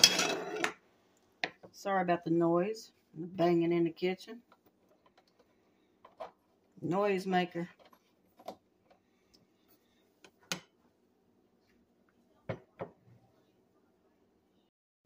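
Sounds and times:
kitchenware clicks and knocks: 0.0s - 0.8s.

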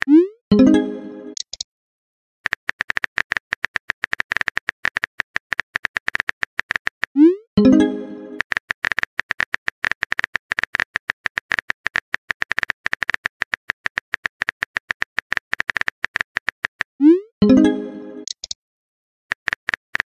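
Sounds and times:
keyboard typing clicks: 1.3s - 1.7s, 2.4s - 16.9s, 18.2s - 18.6s.

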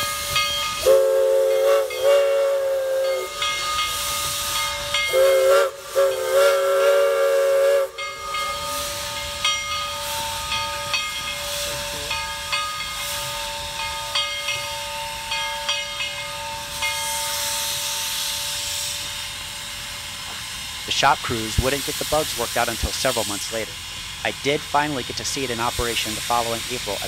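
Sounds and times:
steam locomotive whistle: 0.0s - 10.5s
steam hissing: 0.0s - 27.0s.

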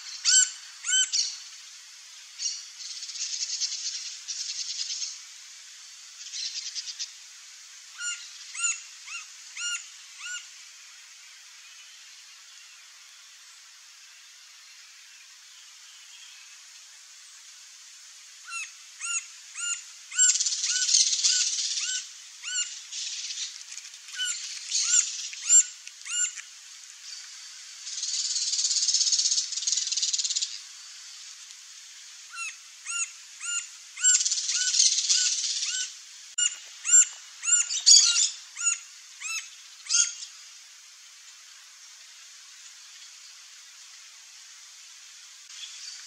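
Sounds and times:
woodpecker rasping call: 18.5s - 22.7s, 24.2s - 26.4s, 32.3s - 40.1s
woodpecker repeated call notes: 32.3s - 40.1s.

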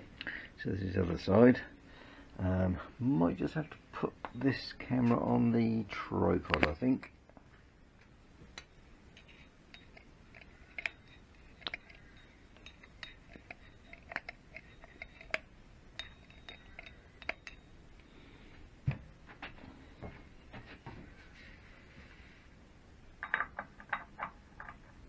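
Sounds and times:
light metal clinks: 8.5s - 18.1s.

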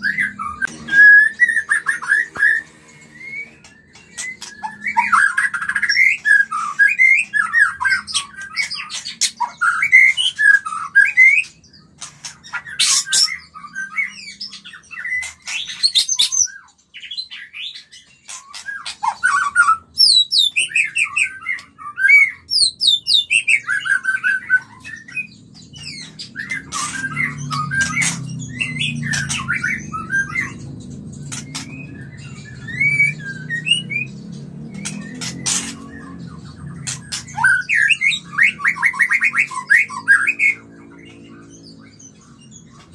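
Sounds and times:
bird singing whistles and clicks: 0.0s - 14.3s, 18.0s - 30.6s, 31.2s - 41.2s.

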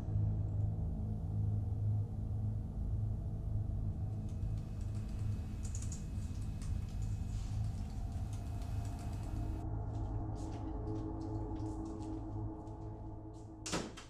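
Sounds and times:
low pulsing drone: 0.0s - 13.6s
laptop keys typing: 4.3s - 9.6s.

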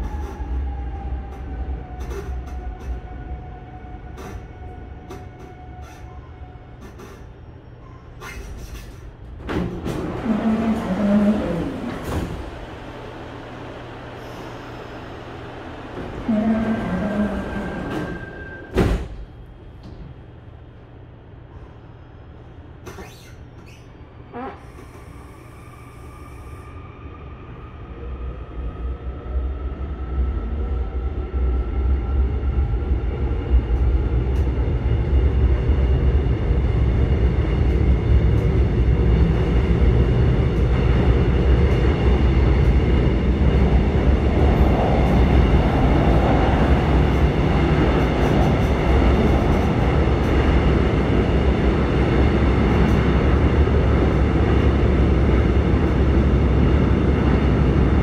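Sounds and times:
wheels rumbling on track: 8.6s - 19.1s.

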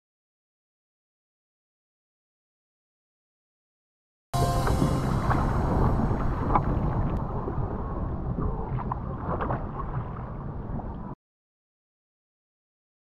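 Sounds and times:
sea water sloshing: 6.5s - 11.1s
small water splashes: 8.4s - 11.0s.

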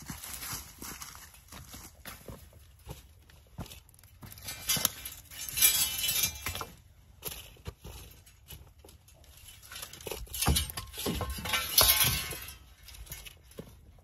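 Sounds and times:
wire fencing clinking and rattling: 4.3s - 14.0s.

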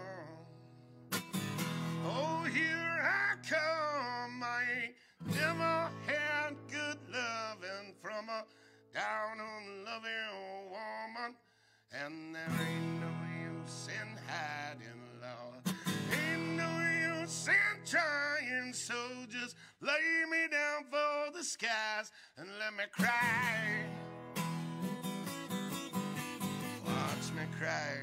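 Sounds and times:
acoustic guitar playing: 0.0s - 4.2s, 5.2s - 8.2s, 12.5s - 19.2s, 23.0s - 28.0s.

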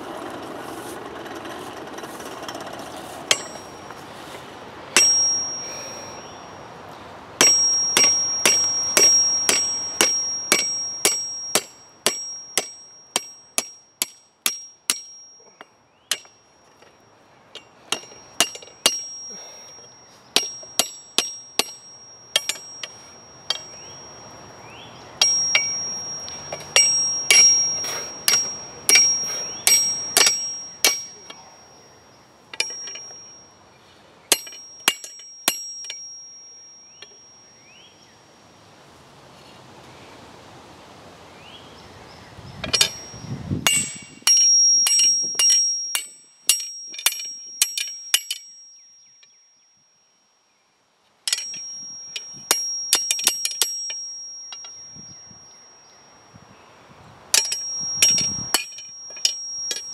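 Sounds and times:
hammer striking on anvil: 3.3s - 3.7s, 5.0s - 5.8s, 7.4s - 16.4s, 17.6s - 19.6s, 20.4s - 24.0s, 25.2s - 31.4s, 32.6s - 33.4s, 34.3s - 37.3s, 42.6s - 48.6s, 51.3s - 55.1s, 57.3s - 59.9s.

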